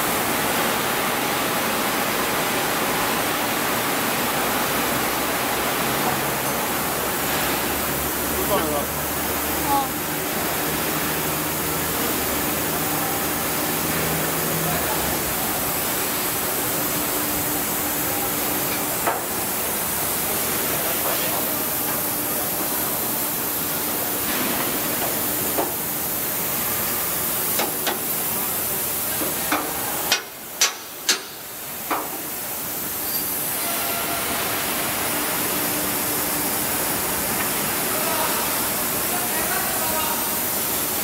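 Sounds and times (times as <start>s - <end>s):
steady hiss: 0.0s - 41.0s
hammer striking steel frame: 29.5s - 32.2s.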